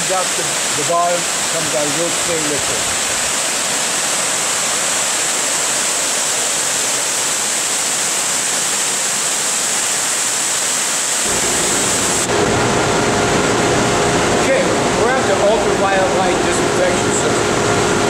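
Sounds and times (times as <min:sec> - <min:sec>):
water rushing over weirs: 0:00.0 - 0:18.0
low machine hum: 0:11.2 - 0:18.0.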